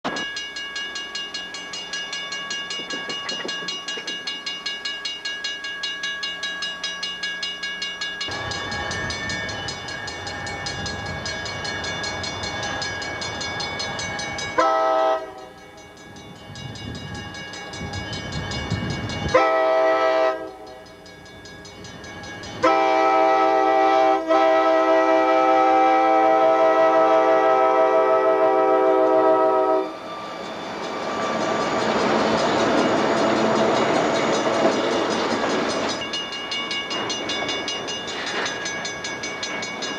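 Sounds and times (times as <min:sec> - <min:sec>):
railroad crossing bell ringing: 0:00.0 - 0:39.9
diesel locomotive rumbling: 0:08.2 - 0:39.9
locomotive horn blasts: 0:14.6 - 0:15.6, 0:19.3 - 0:20.8, 0:22.6 - 0:30.0.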